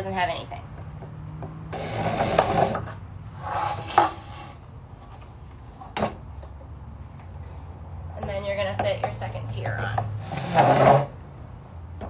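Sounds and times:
plastic tubes rubbing and scraping: 1.7 - 6.0, 9.9 - 11.2.

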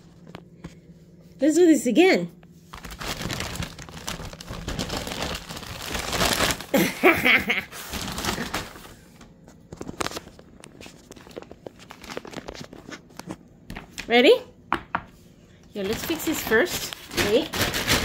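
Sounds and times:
plastic bags crinkling and rustling: 2.7 - 13.4, 15.8 - 18.0.

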